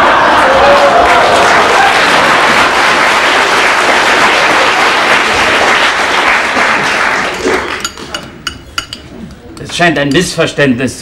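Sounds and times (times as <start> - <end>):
audience applause: 0.0 - 8.1.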